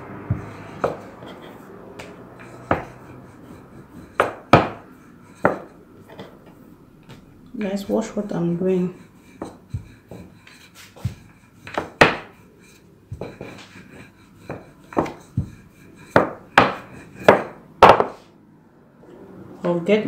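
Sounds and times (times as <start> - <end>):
rolling pin knocking on board: 4.2 - 4.8, 5.4 - 6.3, 11.0 - 12.3, 13.1 - 13.7, 14.4 - 18.2.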